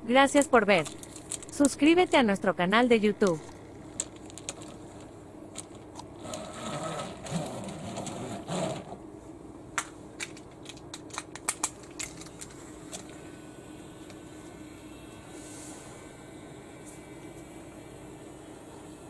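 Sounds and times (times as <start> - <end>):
toy train car rolling rattle: 3.2 - 8.9.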